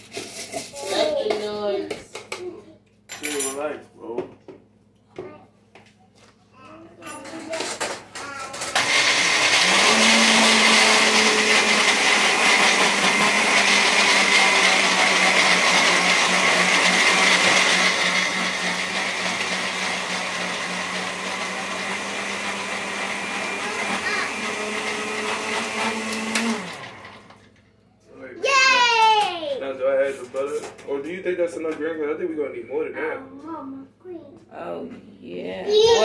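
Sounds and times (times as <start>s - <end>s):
blender grinding: 7.6s - 27.6s.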